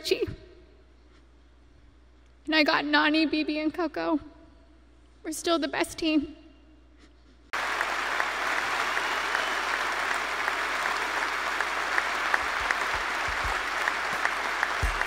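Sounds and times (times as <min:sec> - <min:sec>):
crowd applauding: 0:07.6 - 0:15.0.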